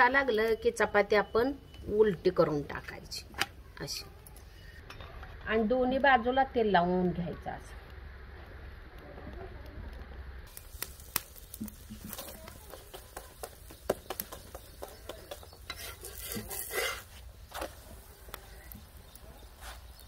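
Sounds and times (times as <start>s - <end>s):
light sizzle: 0.0s - 20.0s
metal spatula scraping iron griddle: 15.2s - 18.1s.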